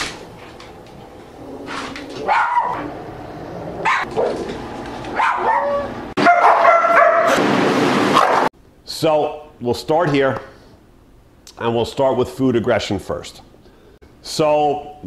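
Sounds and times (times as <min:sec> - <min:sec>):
dog barking: 0:02.2 - 0:02.9, 0:03.8 - 0:04.5, 0:05.1 - 0:07.4, 0:08.2 - 0:08.5.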